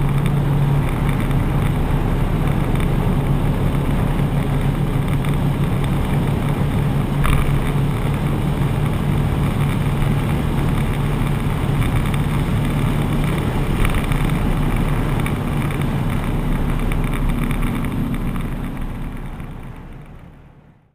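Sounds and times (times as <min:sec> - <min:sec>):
wind noise inside cabin: 0:00.0 - 0:20.4
diesel engine droning: 0:00.0 - 0:20.9.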